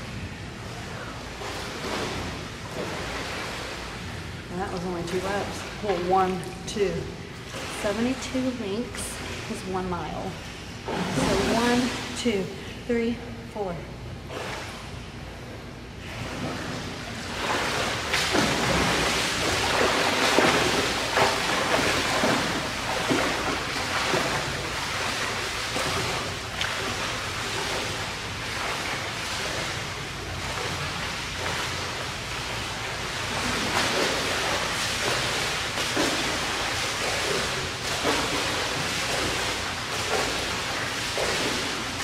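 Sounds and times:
swimmer splashing: 0.7 - 12.6, 16.0 - 42.0.

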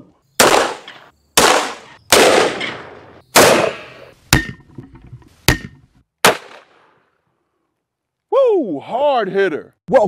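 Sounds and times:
handgun shots echoing: 0.4 - 4.1, 6.2 - 6.9.

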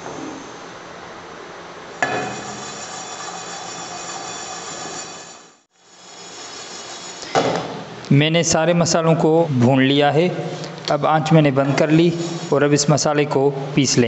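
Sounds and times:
pan scraping on metal grate: 2.0 - 5.6.

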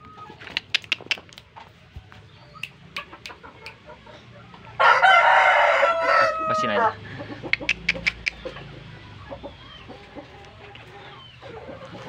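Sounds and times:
rooster crowing: 4.8 - 7.1.

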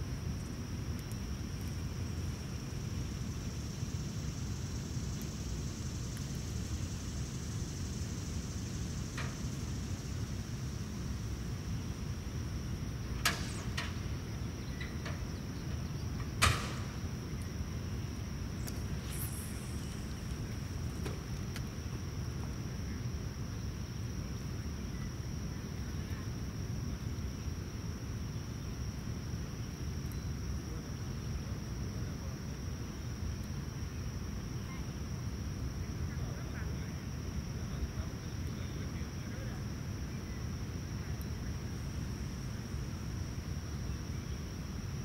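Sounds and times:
thin high drone: 18.8 - 21.0.

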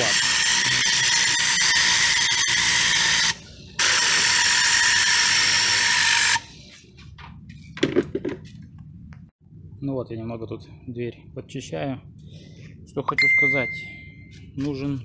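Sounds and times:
air gun hissing and whistling: 0.0 - 6.7.

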